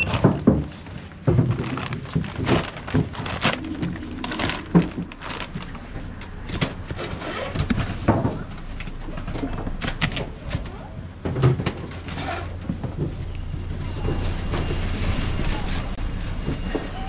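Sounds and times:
plastic baskets and bags rustling: 0:00.0 - 0:14.7.

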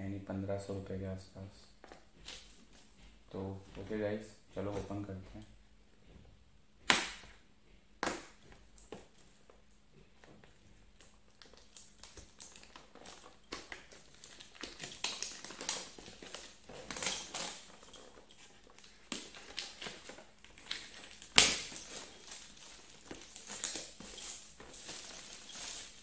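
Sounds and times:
packaging crinkling and scraping: 0:11.3 - 0:26.0.

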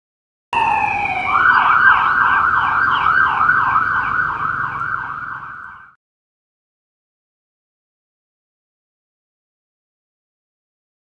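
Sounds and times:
police car siren wailing and yelping: 0:00.6 - 0:06.0.

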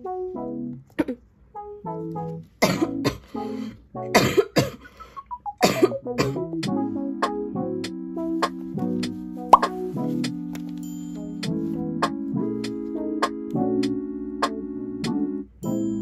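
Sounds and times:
light instrumental music: 0:00.0 - 0:01.0, 0:01.6 - 0:16.0
person coughing: 0:00.9 - 0:01.2, 0:02.6 - 0:03.4, 0:04.2 - 0:06.4.

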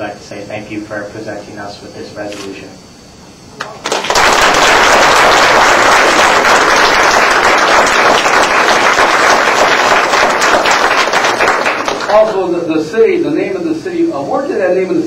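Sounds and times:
audience applauding: 0:03.8 - 0:12.3.

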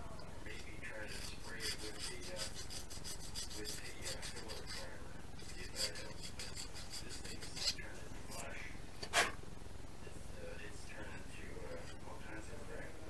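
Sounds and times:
file rasping: 0:01.0 - 0:08.4, 0:09.0 - 0:09.4.

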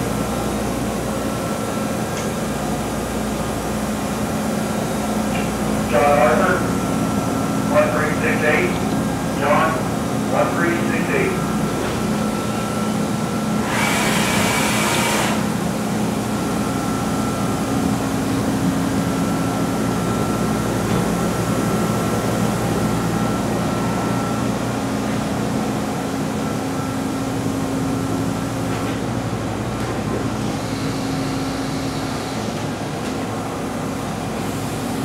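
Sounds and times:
machine-shop equipment hum: 0:00.0 - 0:35.0
constant whine: 0:04.7 - 0:13.9.

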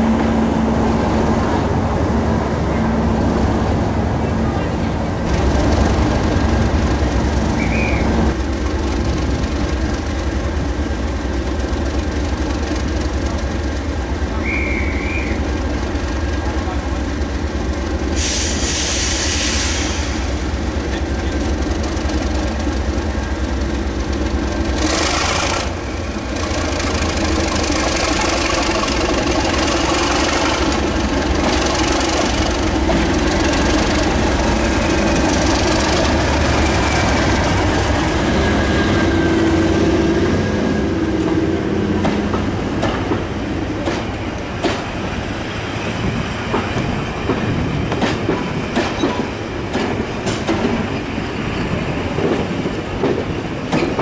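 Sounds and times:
diesel locomotive engine: 0:00.0 - 0:54.0
train wheels clattering: 0:23.7 - 0:45.2, 0:45.8 - 0:54.0.

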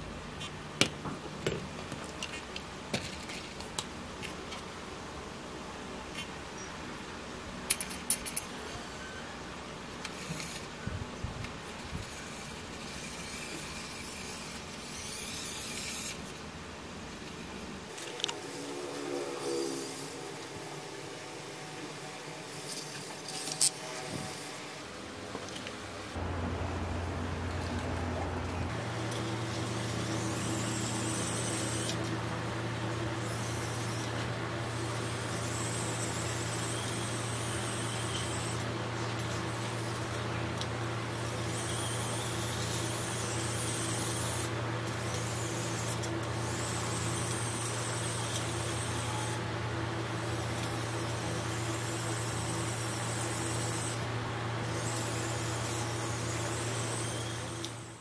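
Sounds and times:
steady low hum: 0:00.0 - 0:58.0
toy car electric motor whirring: 0:10.0 - 0:10.8, 0:11.6 - 0:16.4, 0:17.9 - 0:20.6, 0:22.4 - 0:24.7, 0:29.0 - 0:32.2, 0:33.2 - 0:49.4, 0:50.2 - 0:58.0.

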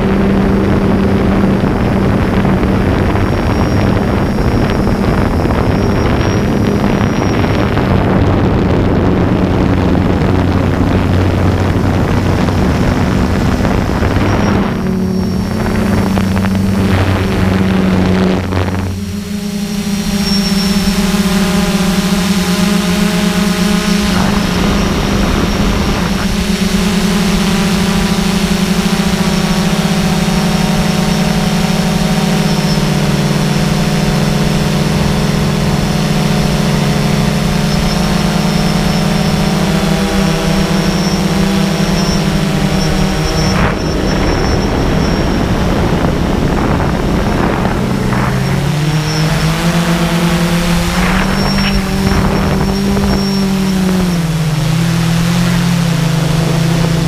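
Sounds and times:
drone propellers buzzing: 0:00.0 - 0:57.0
wind noise on microphone: 0:00.0 - 0:57.0.

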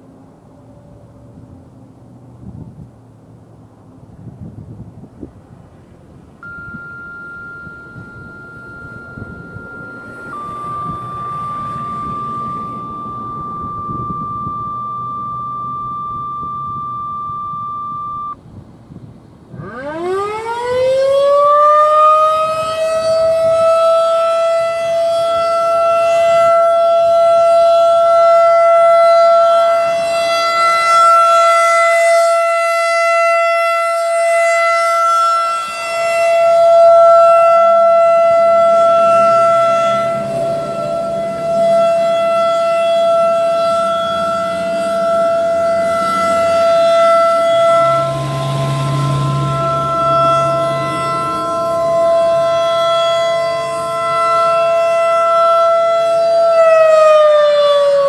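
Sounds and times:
truck rumbling past: 0:00.0 - 0:18.4, 0:22.0 - 0:55.5
radio paging tone: 0:06.4 - 0:18.4
rotating siren wailing: 0:06.4 - 0:18.4, 0:19.5 - 0:58.0.

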